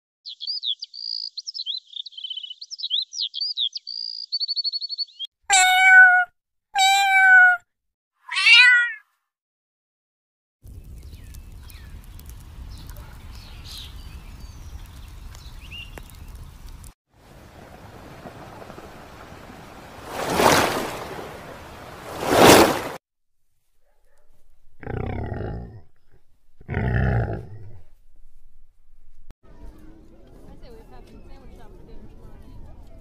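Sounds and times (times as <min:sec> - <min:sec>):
songbird singing with trill: 0:00.3 - 0:05.3, 0:10.8 - 0:12.1, 0:12.7 - 0:16.3
cat meowing: 0:05.5 - 0:09.1
low outdoor rumble: 0:10.7 - 0:20.1.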